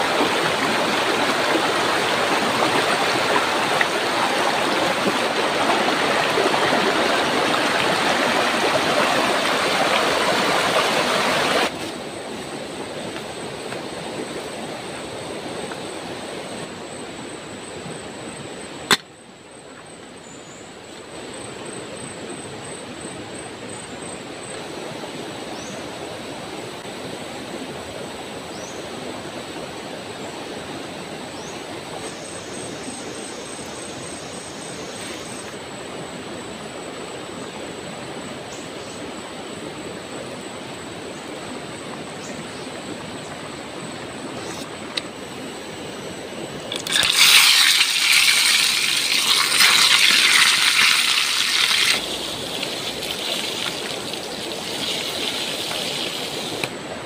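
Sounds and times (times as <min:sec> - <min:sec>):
river rushing: 0:00.0 - 0:16.5, 0:48.3 - 0:57.0
sharp click: 0:18.9 - 0:19.1.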